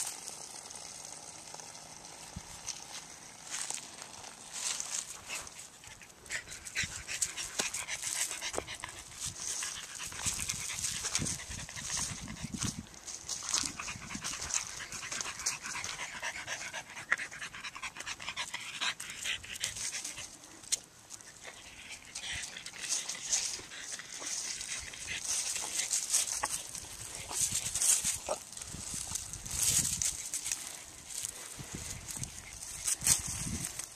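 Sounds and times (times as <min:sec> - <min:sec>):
dog panting: 0:04.8 - 0:12.8, 0:13.4 - 0:20.5, 0:21.2 - 0:28.4.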